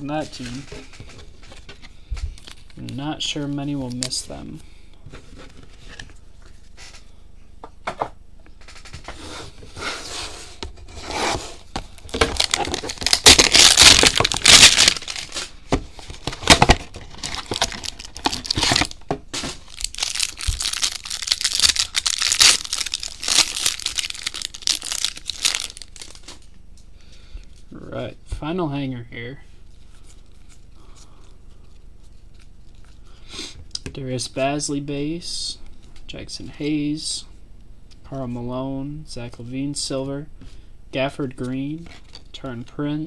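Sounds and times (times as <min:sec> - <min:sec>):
wrapper crinkling and tearing: 0:11.9 - 0:26.5.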